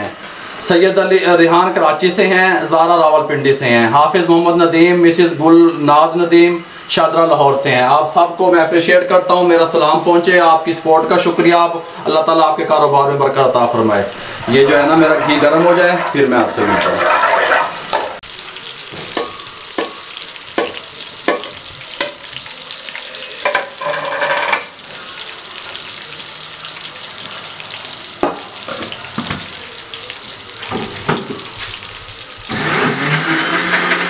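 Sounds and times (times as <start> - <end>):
ghee sizzling in pot: 0.0 - 34.0
electric blender running: 13.5 - 18.2, 32.5 - 34.0.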